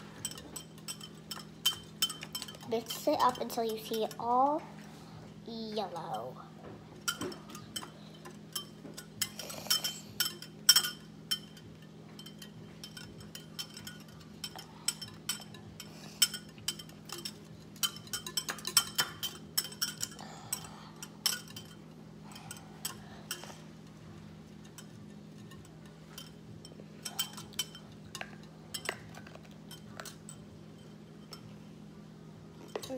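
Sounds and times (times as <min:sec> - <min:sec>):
whisk clinking against glass bowl: 0:00.0 - 0:04.2, 0:07.0 - 0:21.8, 0:24.5 - 0:31.5.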